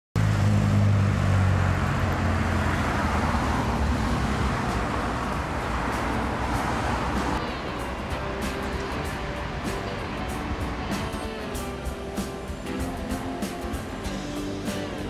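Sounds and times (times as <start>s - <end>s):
cars driving past: 0.2s - 15.0s
low engine hum: 0.2s - 15.0s.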